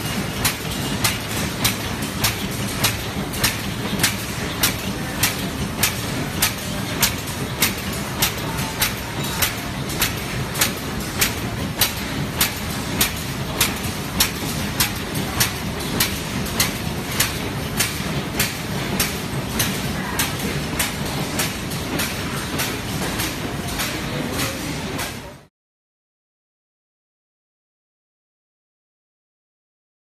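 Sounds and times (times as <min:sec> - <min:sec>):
machine running noise: 0:00.0 - 0:25.5
machine sharp clacks: 0:00.0 - 0:25.5.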